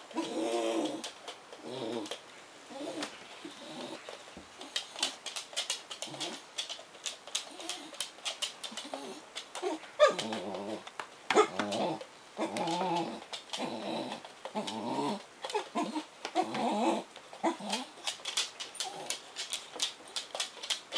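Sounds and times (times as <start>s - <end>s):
puppy whining and grumbling: 0.0s - 4.1s, 6.0s - 6.5s, 8.7s - 18.2s.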